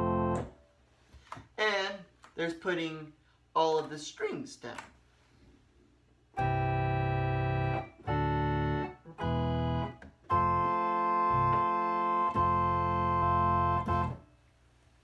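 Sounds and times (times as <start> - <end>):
electronic organ chords: 0.0 - 0.6, 6.3 - 14.3
organ bass pedal line: 0.0 - 0.6, 6.4 - 14.3.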